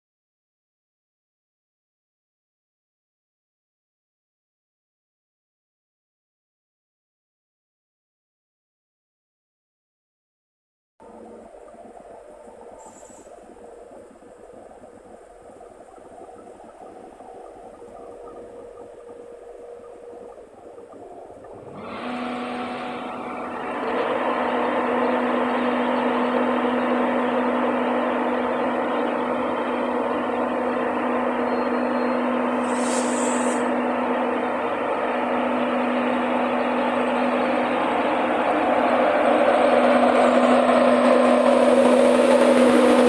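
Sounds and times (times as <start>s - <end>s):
locomotive fans humming and whirring: 11.0s - 43.0s
brief high hiss: 32.6s - 33.7s.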